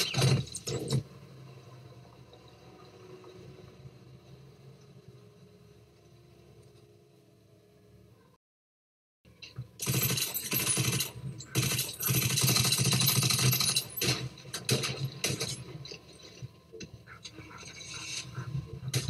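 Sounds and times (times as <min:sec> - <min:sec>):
rapid gunfire: 0:09.8 - 0:15.6.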